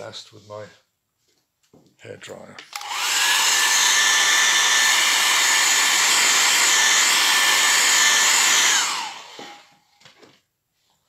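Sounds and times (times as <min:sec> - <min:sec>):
hair dryer blowing: 0:02.7 - 0:09.8.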